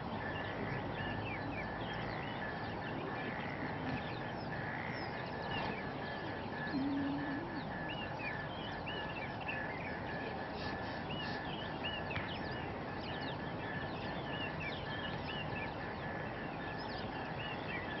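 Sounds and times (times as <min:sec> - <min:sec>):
small birds chirping: 0:00.0 - 0:18.0
brief low tone: 0:06.6 - 0:07.8
steady hiss: 0:10.3 - 0:12.4.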